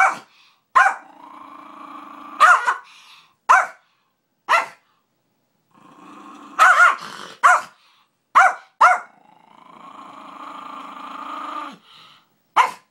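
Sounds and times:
dog barking: 0.0 - 1.1, 2.4 - 2.9, 3.5 - 3.8, 4.5 - 4.8, 6.6 - 9.1, 12.6 - 12.9
small dog growling: 1.0 - 2.5, 5.7 - 7.4, 9.1 - 11.9.

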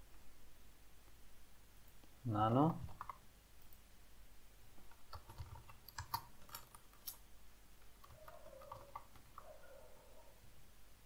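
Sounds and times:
computer keyboard typing: 2.7 - 3.2, 4.9 - 7.2, 7.8 - 9.6.

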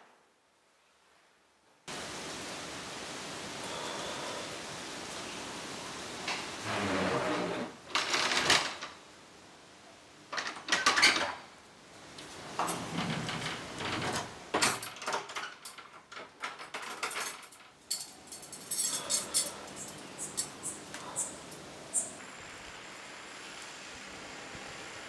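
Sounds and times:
wooden door rattling: 12.6 - 17.5.

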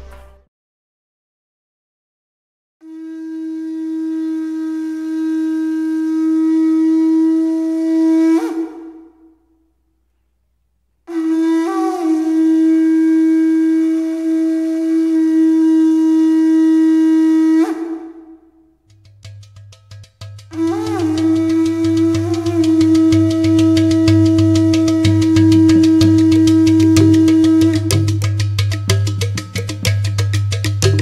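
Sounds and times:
horn-like wind instrument notes: 2.8 - 9.3, 11.1 - 18.6, 20.5 - 28.2.

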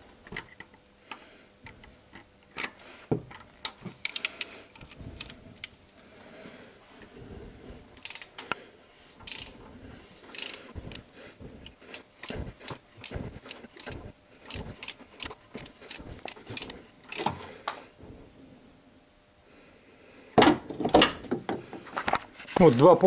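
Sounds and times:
socket ratchet clicking: 4.0 - 4.5, 8.0 - 8.6, 9.2 - 9.6, 10.3 - 11.0, 11.9 - 17.3.

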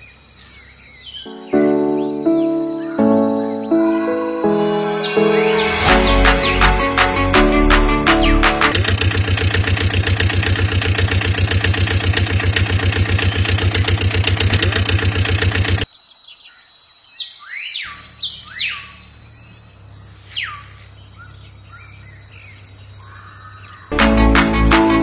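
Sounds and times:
birds chirping: 0.0 - 8.7, 12.4 - 16.6
rapid pulsing mechanical sound: 8.7 - 15.8.

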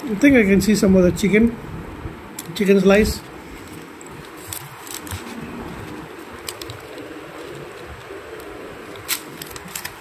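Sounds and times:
paper wrapper crinkling: 3.4 - 10.0.

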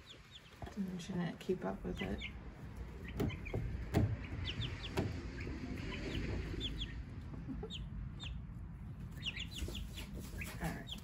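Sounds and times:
chicks peeping: 0.0 - 11.0
sharp knocks: 3.1 - 5.6.

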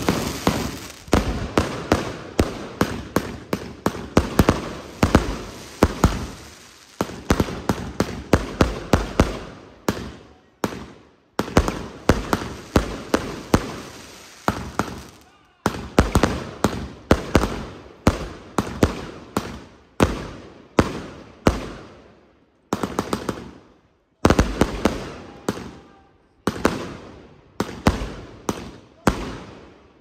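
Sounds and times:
fireworks bangs with hiss: 0.0 - 23.6, 24.2 - 30.0.

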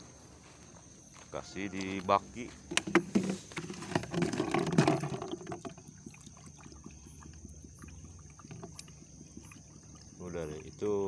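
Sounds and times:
water gurgling in a bucket: 2.8 - 11.0.

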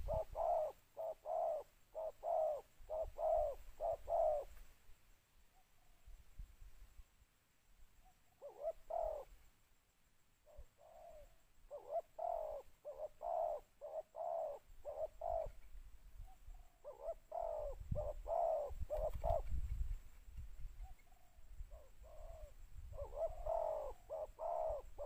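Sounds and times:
dove cooing: 0.0 - 4.6, 8.3 - 9.4, 10.5 - 19.6, 20.8 - 25.0.

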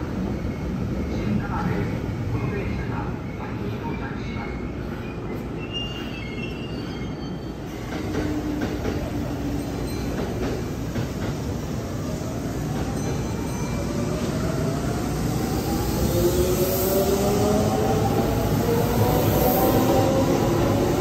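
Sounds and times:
train wheels rumbling on rails: 4.8 - 21.0.

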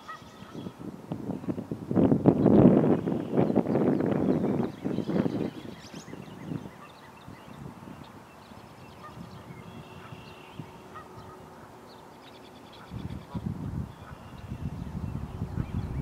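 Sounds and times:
geese honking: 9.9 - 11.8
low rumbling noise: 12.9 - 16.0.

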